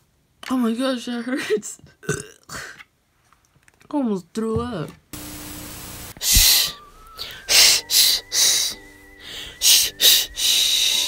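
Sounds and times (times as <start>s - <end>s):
tv static hiss: 5.2s - 7.0s
breathy shushing: 6.2s - 11.0s.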